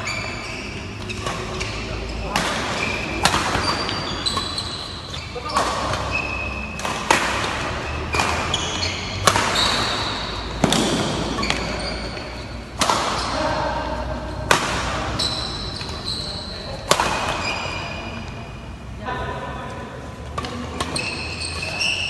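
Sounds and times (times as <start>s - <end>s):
shoe squeaks on court floor: 0.0s - 6.9s, 7.7s - 10.5s, 11.2s - 13.4s, 15.0s - 18.3s, 20.5s - 22.0s
racket striking shuttlecock: 1.0s - 13.4s, 14.3s - 16.1s, 16.8s - 18.4s, 20.3s - 21.8s.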